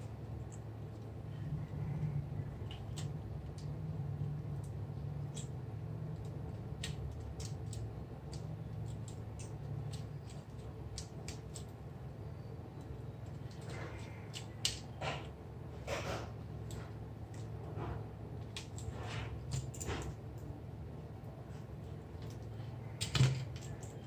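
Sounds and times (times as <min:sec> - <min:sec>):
steady low hum: 0:00.0 - 0:24.0
small tools clicking: 0:04.6 - 0:11.8.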